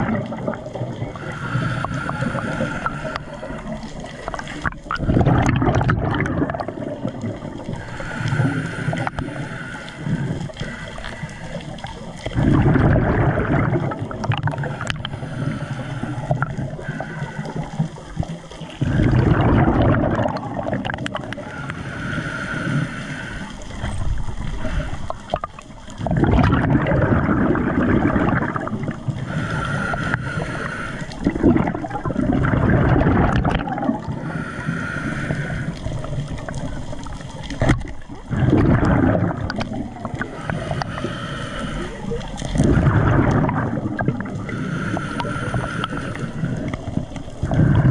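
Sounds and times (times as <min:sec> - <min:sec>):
underwater gurgling and bubbling: 0:00.0 - 0:47.9.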